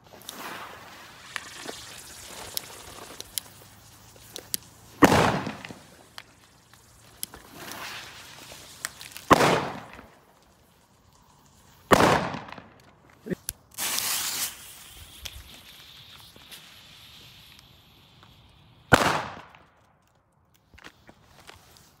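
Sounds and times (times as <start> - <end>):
firecrackers exploding: 0.0 - 12.8, 13.7 - 19.8
rustling noise: 20.6 - 22.0.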